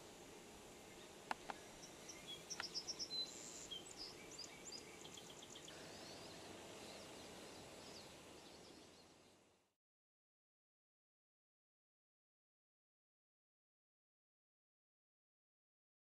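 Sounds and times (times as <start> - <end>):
songbirds chipping and whistling: 0.8 - 9.5.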